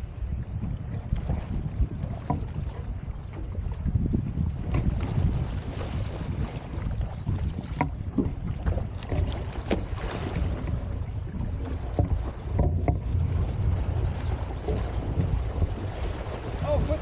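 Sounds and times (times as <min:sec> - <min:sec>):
water washing around boat hull: 0:00.0 - 0:17.0
wind buffeting microphone: 0:00.0 - 0:17.0.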